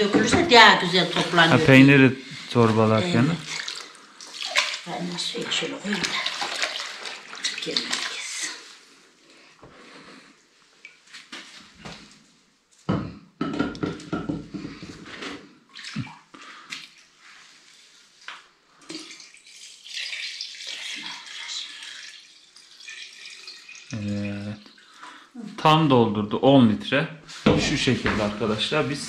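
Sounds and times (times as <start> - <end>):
liquid pouring into a glass jar: 18.9 - 25.1.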